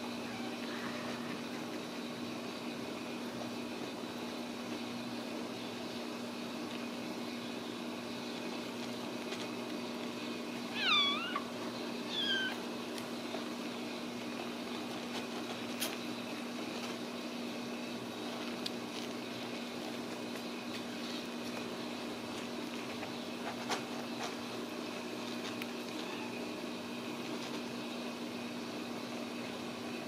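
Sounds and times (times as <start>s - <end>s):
kitten mewing: 10.7s - 12.7s.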